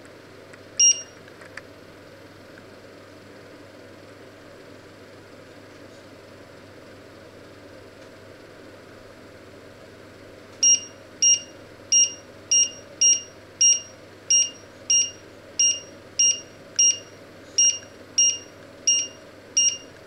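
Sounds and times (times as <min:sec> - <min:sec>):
steady low hum: 0:00.0 - 0:03.4, 0:10.0 - 0:20.0
hob short high beeps: 0:00.8 - 0:01.1, 0:10.6 - 0:19.9.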